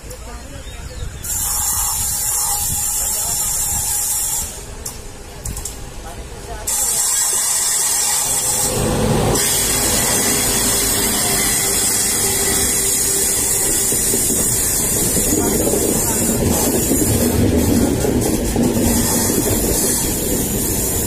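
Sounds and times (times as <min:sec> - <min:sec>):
train wind and rail noise: 0:00.0 - 0:21.0
train wheel clicks: 0:04.1 - 0:05.8, 0:09.3 - 0:21.0.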